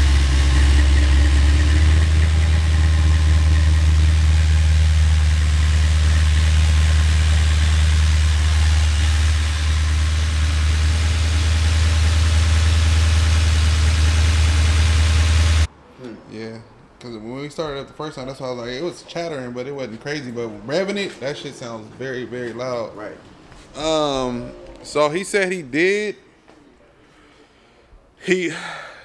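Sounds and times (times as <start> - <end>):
car engine idling: 0.0 - 15.7.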